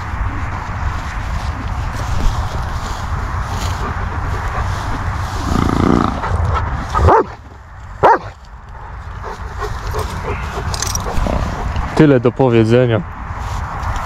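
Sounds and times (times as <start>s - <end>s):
dog barking: 7.0s - 7.4s, 8.0s - 8.4s.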